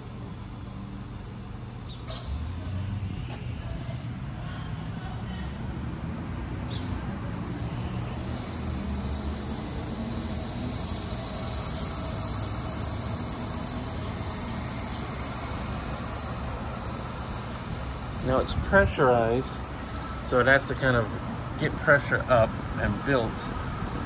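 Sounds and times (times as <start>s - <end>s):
high-pitched gas hiss: 2.0s - 3.8s, 6.6s - 24.0s.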